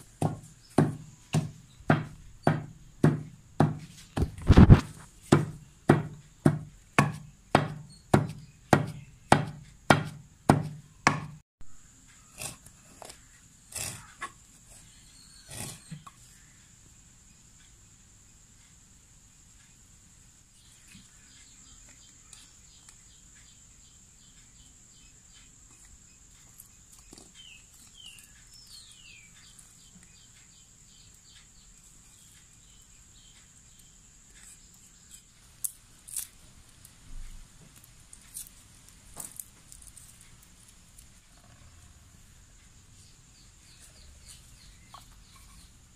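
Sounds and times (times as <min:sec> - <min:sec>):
pestle pounding in stone mortar: 0:00.2 - 0:11.4.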